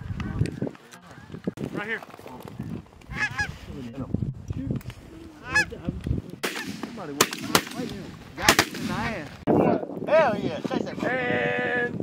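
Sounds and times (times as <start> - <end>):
geese honking: 3.1 - 3.6, 5.4 - 5.7
shotgun shots: 6.4 - 9.2.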